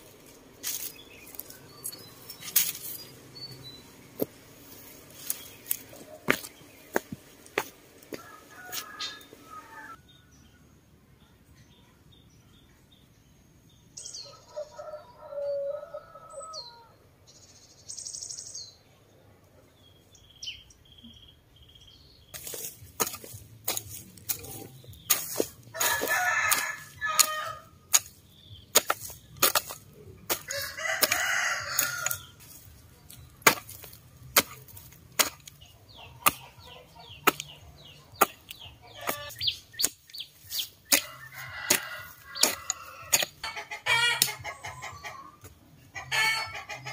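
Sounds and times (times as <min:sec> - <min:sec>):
birds calling: 0:00.0 - 0:10.3, 0:19.9 - 0:46.9
chickens calling: 0:04.6 - 0:10.0, 0:22.4 - 0:46.9
hoe chopping into dry soil: 0:05.2 - 0:07.8, 0:22.4 - 0:43.4
rooster crowing: 0:08.1 - 0:10.0, 0:41.0 - 0:43.2.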